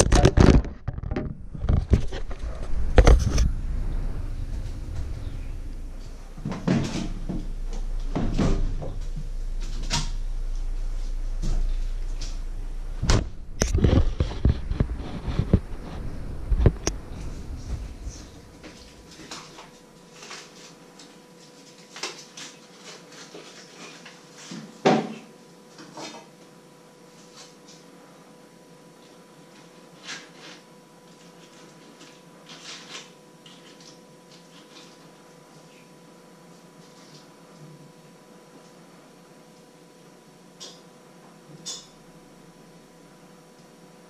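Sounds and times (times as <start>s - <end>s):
low rumble: 0.7s - 19.9s.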